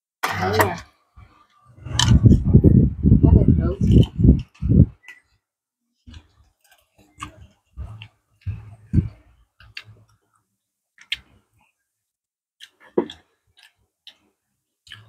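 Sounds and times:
low soft thuds: 0:07.8 - 0:09.2.

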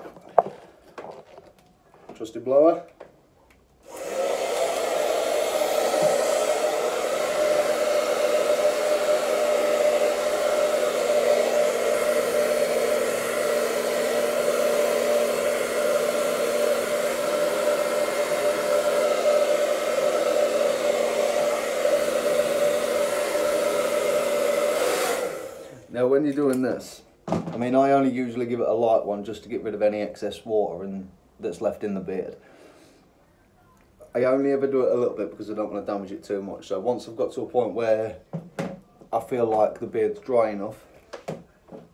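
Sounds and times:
hair dryer running: 0:03.8 - 0:25.9.

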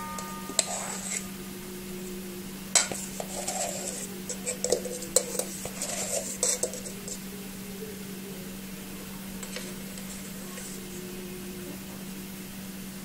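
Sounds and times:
metal utensils clinking against dishes: 0:00.0 - 0:01.3, 0:02.8 - 0:07.2.

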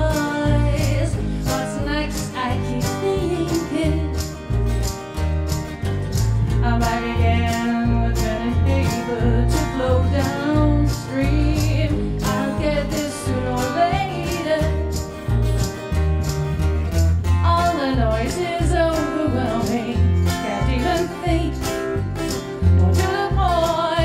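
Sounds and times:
woman singing: 0:00.0 - 0:04.4, 0:06.5 - 0:15.0, 0:17.4 - 0:21.9, 0:22.6 - 0:24.0
plucked upright bass: 0:00.0 - 0:24.0
strummed acoustic guitar: 0:00.0 - 0:24.0
tambourine jingling: 0:00.0 - 0:24.0.

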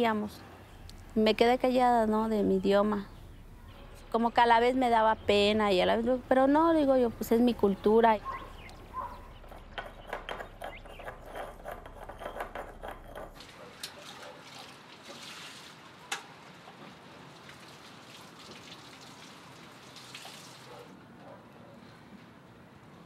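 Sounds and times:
containers knocking: 0:09.4 - 0:13.4
water pouring and splashing: 0:13.4 - 0:20.9.

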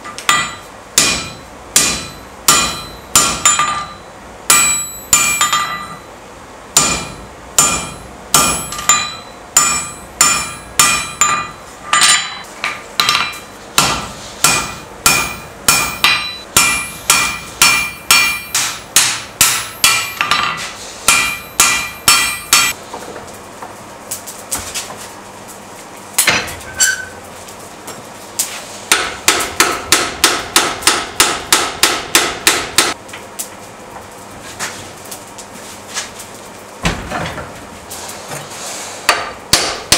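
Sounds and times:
hammer blows on anvil: 0:00.3 - 0:06.1, 0:06.8 - 0:22.8.

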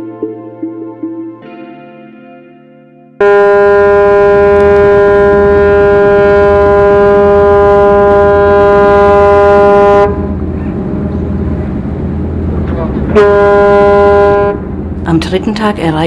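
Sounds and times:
ship's horn blast: 0:03.2 - 0:15.9
low rumble: 0:03.6 - 0:16.0.

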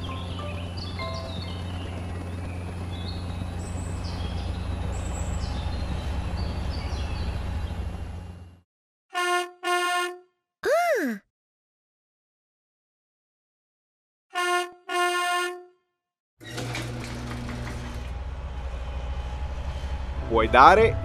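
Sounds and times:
drone propeller hum: 0:00.2 - 0:05.0
truck horn toots: 0:14.4 - 0:15.8.

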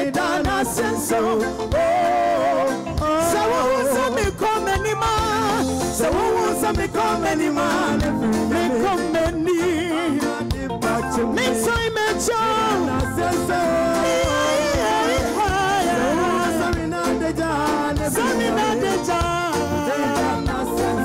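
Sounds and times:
gospel band music: 0:00.0 - 0:21.0
woman singing into microphone: 0:11.2 - 0:16.9.

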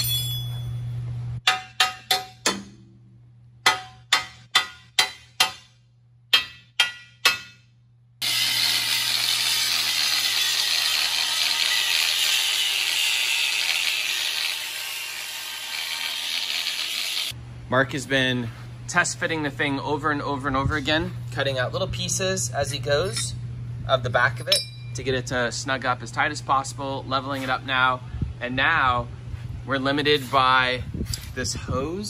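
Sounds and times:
hammer striking steel: 0:01.4 - 0:10.7, 0:24.4 - 0:25.0
angle grinder cutting steel: 0:08.2 - 0:17.4.

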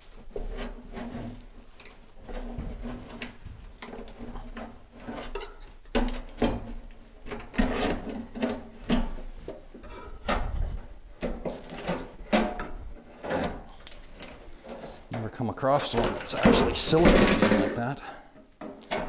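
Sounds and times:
metal sink creaking: 0:09.8 - 0:17.9.

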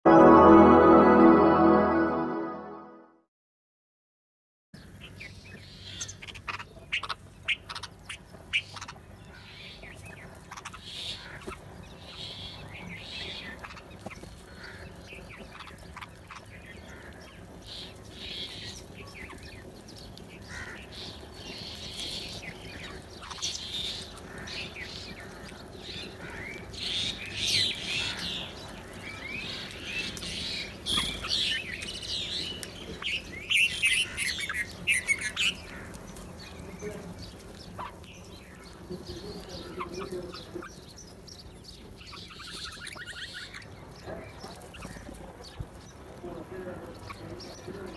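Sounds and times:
bulbuls chirping: 0:05.9 - 0:46.2
crows cawing: 0:14.4 - 0:15.0, 0:16.8 - 0:17.6, 0:20.4 - 0:21.0, 0:24.2 - 0:26.8, 0:27.9 - 0:28.6, 0:33.9 - 0:34.7, 0:35.6 - 0:36.0.

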